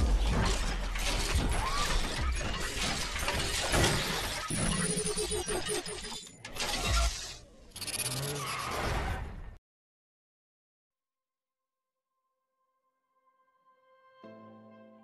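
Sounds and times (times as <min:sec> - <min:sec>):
mechanical clanks: 0:00.0 - 0:08.2.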